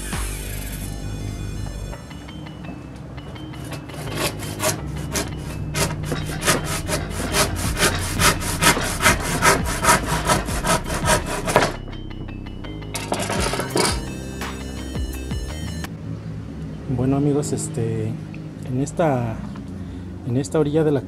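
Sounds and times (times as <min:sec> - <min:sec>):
handsaw cutting countertop: 0:03.7 - 0:11.8.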